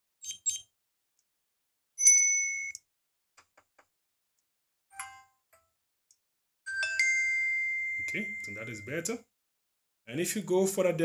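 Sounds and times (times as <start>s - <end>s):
bell-like tone: 6.7s - 9.1s.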